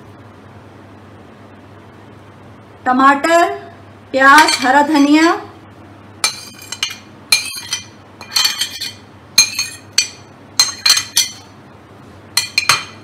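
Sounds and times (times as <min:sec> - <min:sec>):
metal spoon knocking on glass bowl: 0:06.2 - 0:11.5, 0:12.4 - 0:13.0.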